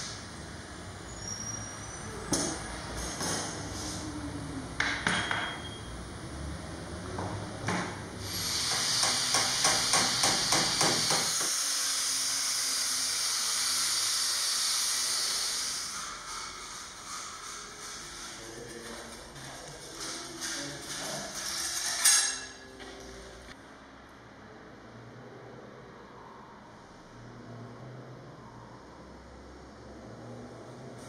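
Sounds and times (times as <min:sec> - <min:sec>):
electric sander hissing: 0:08.2 - 0:17.2.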